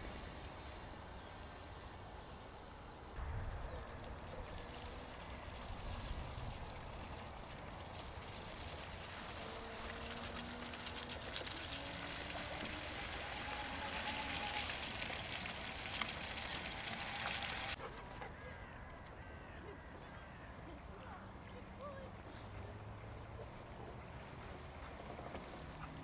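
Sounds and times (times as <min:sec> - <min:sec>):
faint motor whine: 0:00.0 - 0:17.8
tyres hissing through mud: 0:00.0 - 0:17.8.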